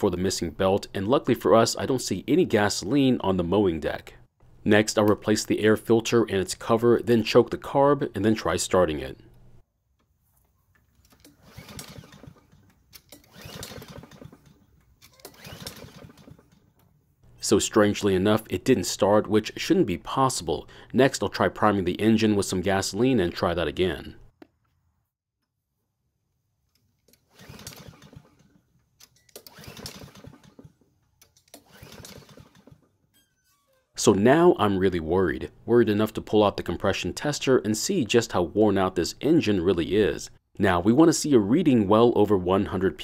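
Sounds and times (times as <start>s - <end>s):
lawnmower engine cranking: 10.9s - 16.8s, 27.0s - 32.9s
recoil starter rope pulls: 10.9s - 16.8s, 27.0s - 33.0s
lawn mower engine turning over: 11.0s - 16.7s.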